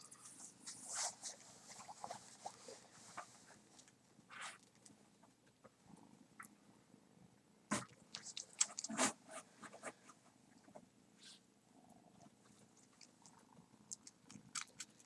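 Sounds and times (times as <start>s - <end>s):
kitten sucking wet clicks: 8.1s - 8.9s, 12.8s - 15.0s.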